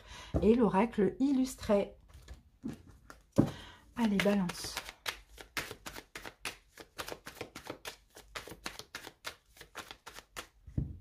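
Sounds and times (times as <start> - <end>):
cards being shuffled: 2.1 - 10.6.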